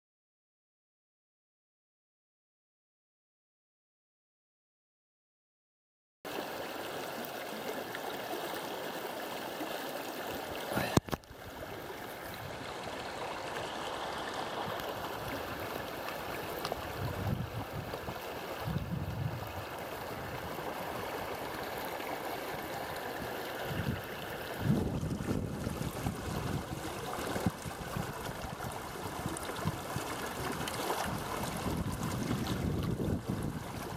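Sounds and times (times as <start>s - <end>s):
creek water rushing over rocks: 6.3s - 33.9s
wind rumble on microphone: 14.6s - 21.1s, 23.6s - 33.9s.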